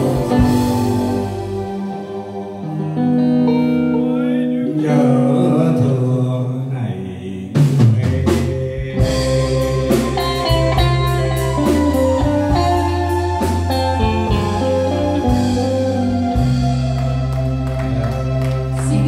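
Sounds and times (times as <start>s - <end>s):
live band playing: 0.0s - 6.2s, 7.5s - 19.0s.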